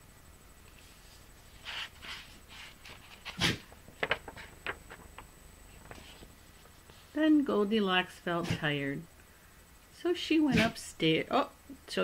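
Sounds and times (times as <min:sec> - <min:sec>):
book pages rustling: 0:00.7 - 0:07.1.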